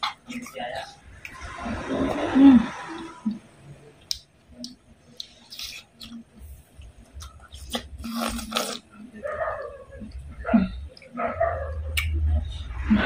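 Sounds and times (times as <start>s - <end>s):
lip smacks and chewing clicks: 4.0s - 8.8s
wet slurping bite: 7.6s - 8.8s.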